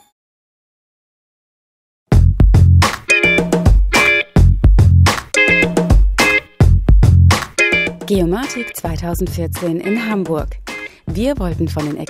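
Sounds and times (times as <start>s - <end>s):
electronic background music: 2.8s - 12.0s.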